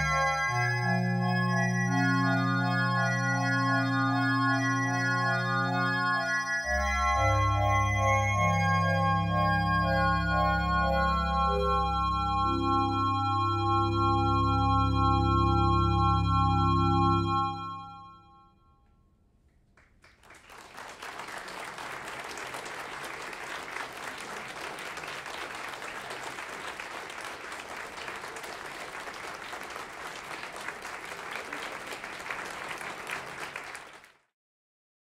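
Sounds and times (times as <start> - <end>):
sustained electronic keyboard chord: 0.0 - 18.7
audience applauding: 19.7 - 34.3.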